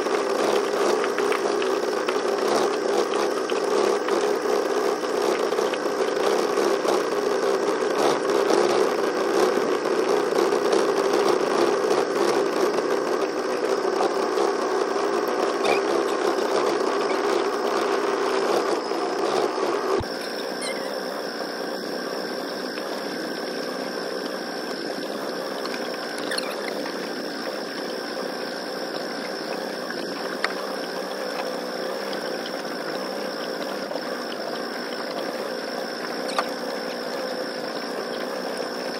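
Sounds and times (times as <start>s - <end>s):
boat motor buzzing: 0.0s - 38.9s
quiet hum with high whine: 0.0s - 38.9s.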